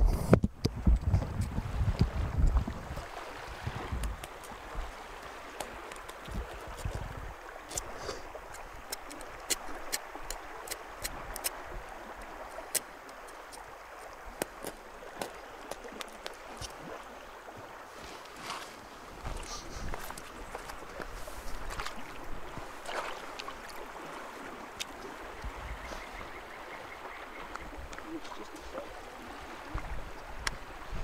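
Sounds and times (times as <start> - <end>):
wind buffeting microphone: 0.0 - 5.0, 6.2 - 7.8, 25.1 - 26.4, 27.6 - 31.0.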